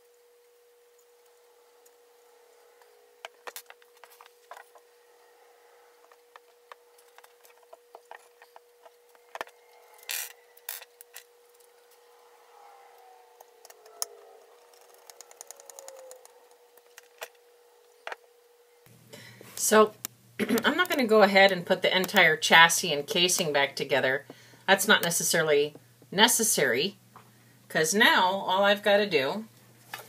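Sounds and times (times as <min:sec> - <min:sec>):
faint steady hum: 0:00.0 - 0:30.0
small tools clicking and scraping: 0:01.0 - 0:18.2.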